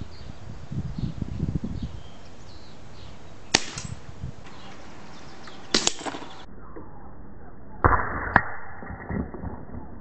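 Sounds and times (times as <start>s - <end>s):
air rifle firing crack: 3.5s - 4.8s, 5.4s - 6.5s.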